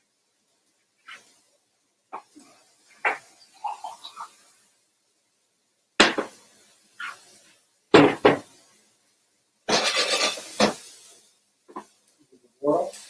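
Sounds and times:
utensil scraping vegetables in pan: 0:06.6 - 0:07.6, 0:09.7 - 0:11.9
kitchen knocks: 0:08.0 - 0:08.5.

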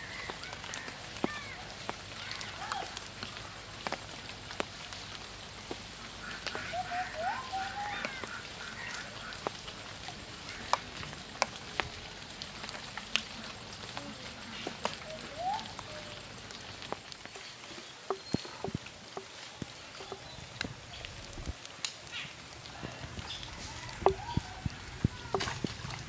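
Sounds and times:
light rain patter: 0:00.0 - 0:26.0
sharp drip clicks: 0:14.6 - 0:26.0.

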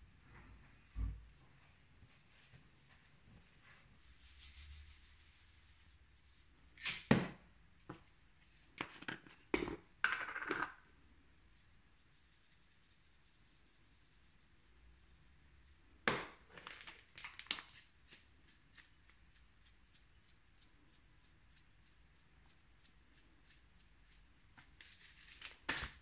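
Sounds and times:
kitchenware knocking and clinking: 0:09.6 - 0:10.8.

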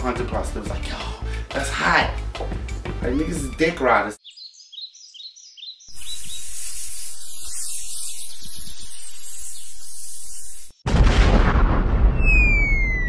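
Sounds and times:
bird chirps: 0:04.2 - 0:10.8
fuse hissing: 0:05.9 - 0:10.8.

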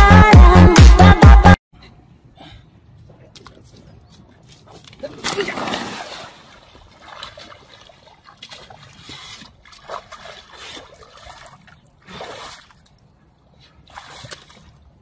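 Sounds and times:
muddy water splashing: 0:03.2 - 0:15.0.

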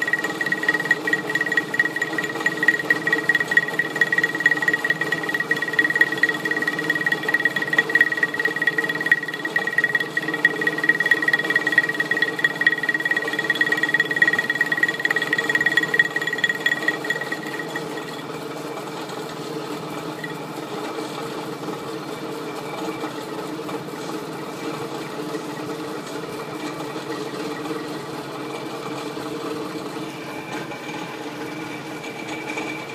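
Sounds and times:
milling cutter whine: 0:00.0 - 0:18.4, 0:20.0 - 0:20.8
motor hum: 0:00.0 - 0:18.4.

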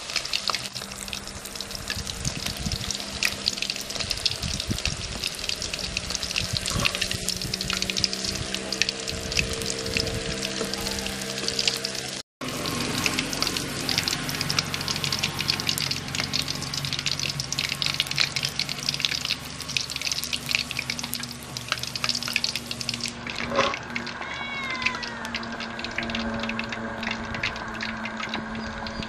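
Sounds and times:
fish deep-frying in hot oil: 0:00.0 - 0:29.0
short falling high calls: 0:23.8 - 0:25.9.

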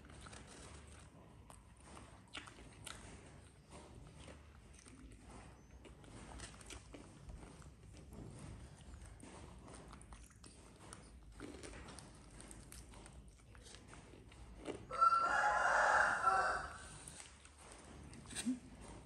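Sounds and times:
people eating clicks and smacking: 0:00.0 - 0:19.0
rooster crowing: 0:14.9 - 0:16.9.

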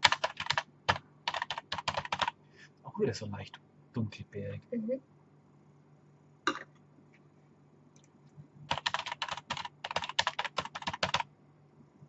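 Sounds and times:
typing on computer keyboard: 0:00.0 - 0:02.3, 0:08.7 - 0:11.3
low steady hum: 0:00.0 - 0:12.0.

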